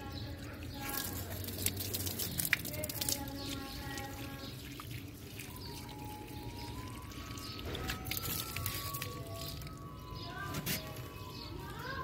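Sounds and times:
water pouring from a hose: 0.0s - 12.0s
drip splashes: 0.4s - 9.9s.

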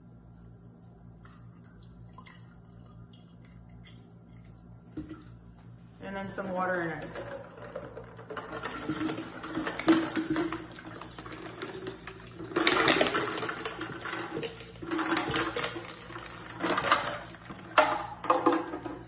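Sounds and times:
water and ice pouring into glass: 8.3s - 17.5s.

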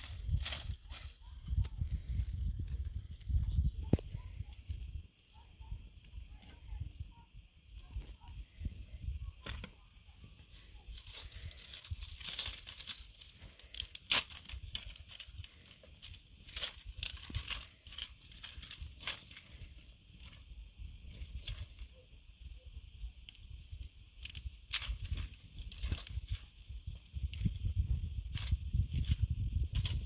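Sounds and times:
dry twigs snapping and crackling: 0.0s - 3.4s, 10.9s - 20.5s, 21.1s - 21.9s, 23.2s - 30.0s.

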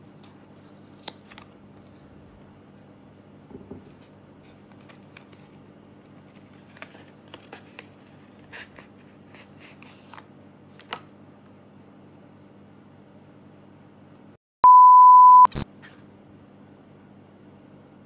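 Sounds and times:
paper envelope rustling: 3.9s - 11.0s.

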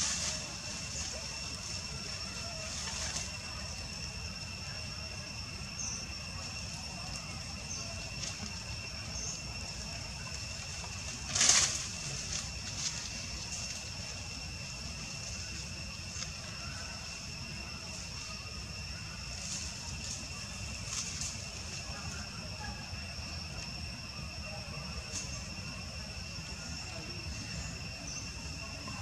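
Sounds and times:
loud rustle: 0.0s - 3.8s, 10.2s - 14.3s, 19.3s - 21.9s
steady high-pitched whine: 0.0s - 29.0s
faint bird chirps: 5.6s - 8.2s, 9.0s - 9.8s.

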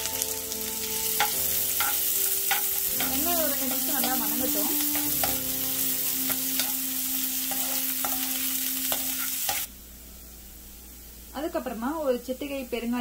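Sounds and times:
onions sizzling in a pan: 0.0s - 9.7s
metal spoon scraping a pan: 1.1s - 9.7s.

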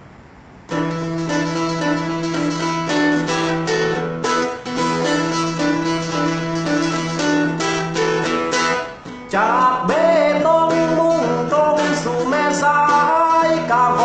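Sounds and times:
plucked lute: 0.7s - 14.0s
man singing: 9.3s - 14.0s.

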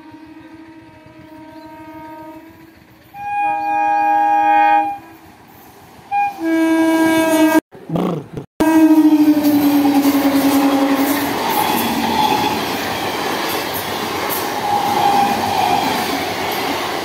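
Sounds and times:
train horn blasts: 0.0s - 5.4s, 6.1s - 7.6s, 8.6s - 12.6s, 14.6s - 16.0s.

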